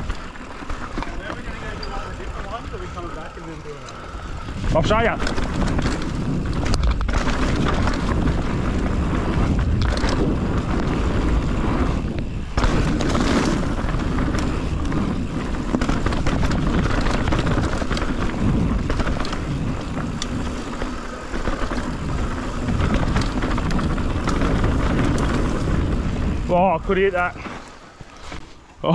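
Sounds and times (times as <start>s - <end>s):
bike rattling: 0.0s - 28.9s
tyres rolling over dirt and rock: 0.0s - 28.9s
wind on microphone: 4.3s - 27.4s.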